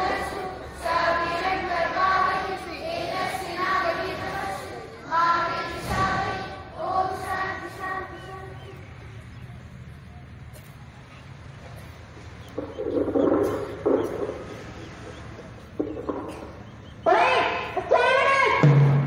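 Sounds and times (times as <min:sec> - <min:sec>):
children singing in unison: 0:00.0 - 0:09.1
burst of many voices: 0:00.0 - 0:09.7.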